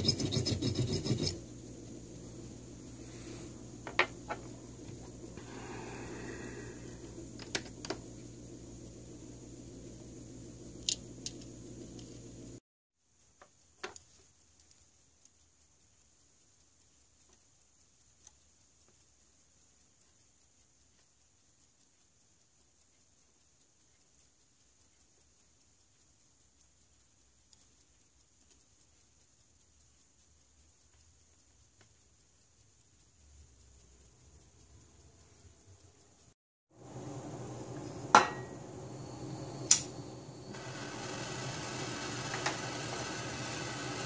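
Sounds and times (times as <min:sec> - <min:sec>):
clock ticking: 0:13.0 - 0:37.0, 0:40.5 - 0:44.0
light clicks of metal parts: 0:13.2 - 0:36.4.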